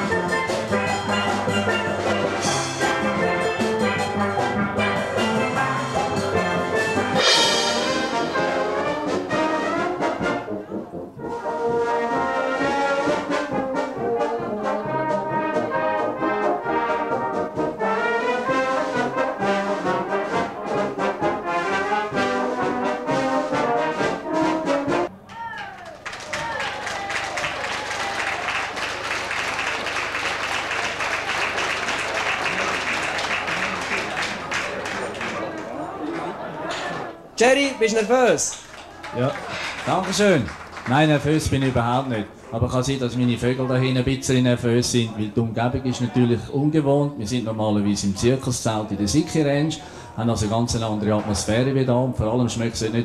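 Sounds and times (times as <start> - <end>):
conga drums: 0.0 - 10.3
steel band playing: 0.0 - 25.1, 30.2 - 35.6
brass band playing: 0.0 - 25.2, 29.2 - 35.5.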